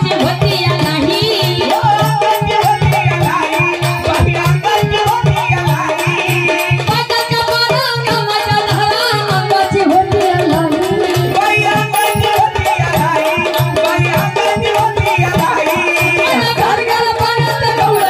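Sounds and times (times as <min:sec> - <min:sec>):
drum beat: 0:00.0 - 0:18.0
jingling metal percussion: 0:00.0 - 0:18.0
woman singing folk song: 0:16.2 - 0:18.0.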